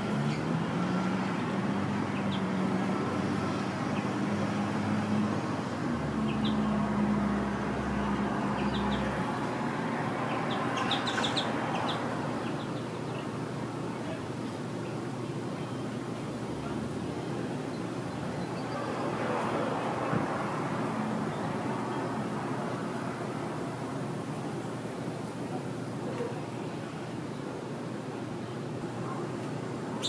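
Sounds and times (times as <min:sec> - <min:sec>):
vehicle engine drone: 0:00.0 - 0:13.5
traffic hum: 0:00.0 - 0:30.0
small birds chirping: 0:02.0 - 0:02.6, 0:06.2 - 0:06.8, 0:08.4 - 0:09.4, 0:10.2 - 0:13.4.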